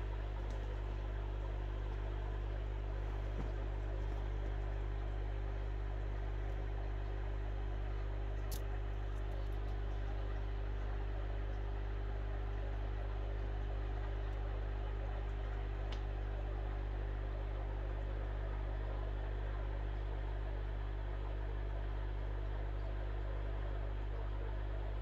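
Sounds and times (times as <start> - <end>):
aquarium pump humming: 0.0 - 25.0
faint clicks: 15.9 - 16.2.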